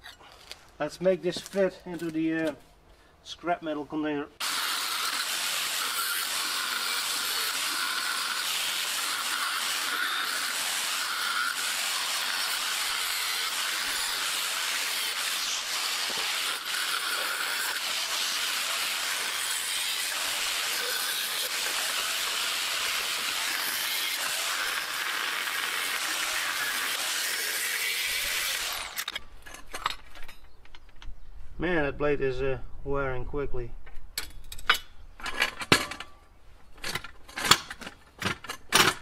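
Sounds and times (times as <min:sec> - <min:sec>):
angle grinder cutting metal: 0:04.4 - 0:29.2.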